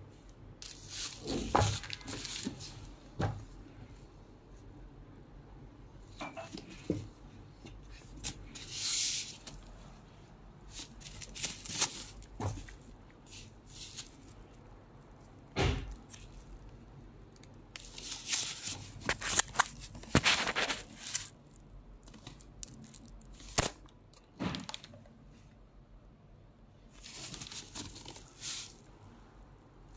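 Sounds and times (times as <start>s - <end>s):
tissue paper rustling and crinkling: 0.6s - 2.9s, 10.7s - 14.6s, 17.8s - 23.7s, 26.9s - 28.9s.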